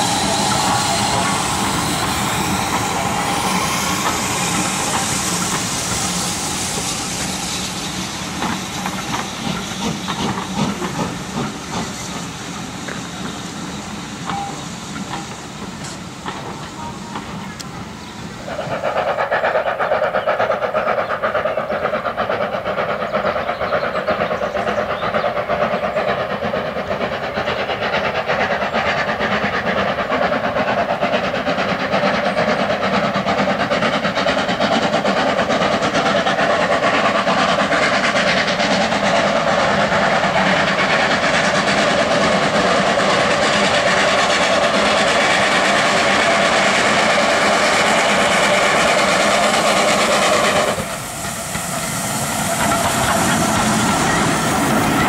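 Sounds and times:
steam locomotive running: 0.0 - 55.0.

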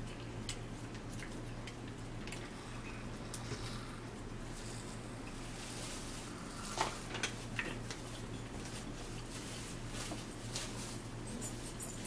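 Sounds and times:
steady low hum: 0.0 - 12.0
clicks and light rustles: 6.8 - 12.0.

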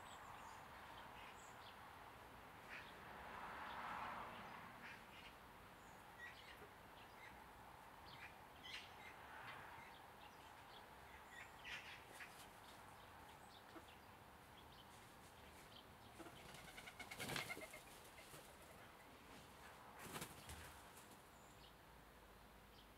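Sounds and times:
young chickens chirping: 10.3 - 21.1
feathers fluttering: 16.3 - 18.6.

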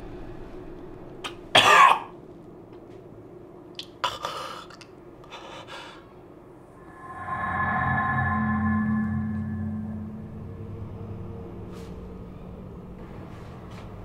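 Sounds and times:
eerie music drone: 6.6 - 13.3.

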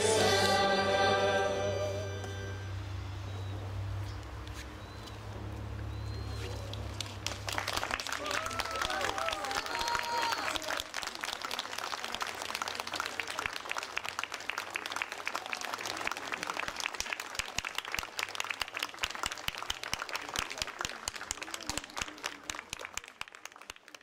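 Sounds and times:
audience clapping: 6.6 - 24.0.

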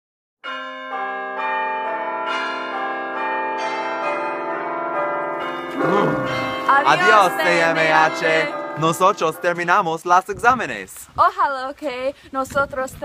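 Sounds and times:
bells ringing: 0.4 - 10.0.

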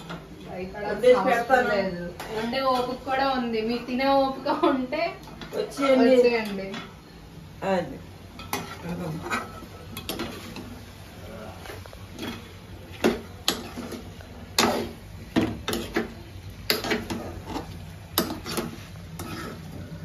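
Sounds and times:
metal spatula scraping pan: 0.9 - 3.4, 5.3 - 6.8, 8.4 - 10.8, 11.7 - 16.1, 16.7 - 20.0.

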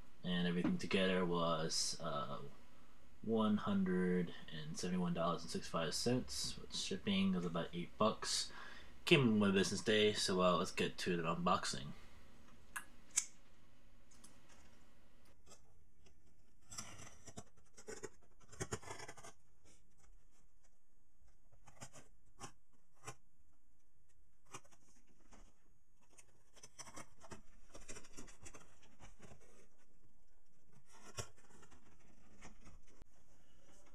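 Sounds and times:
cardboard rubbing and rustling: 16.2 - 20.5, 24.4 - 33.9.

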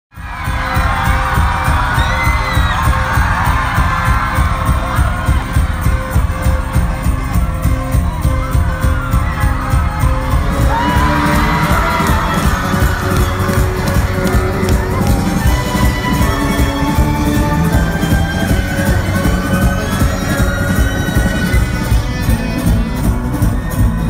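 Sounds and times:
crowd shouting and whooping: 0.1 - 24.0
loud music with pulsing bass: 0.2 - 24.0.

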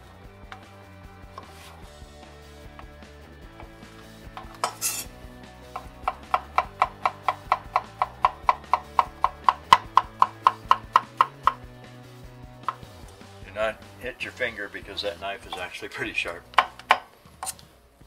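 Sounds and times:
knife scrape: 1.4 - 1.8, 4.6 - 5.1
knife chopping on wooden board: 5.7 - 11.6, 12.6 - 12.9, 16.5 - 17.1.

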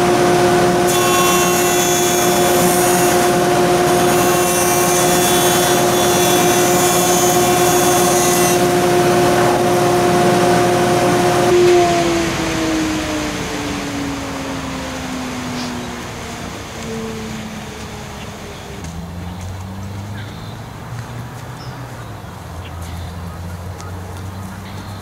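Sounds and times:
board being planed: 0.0 - 11.8
wood jointer motor hum: 0.0 - 12.4.

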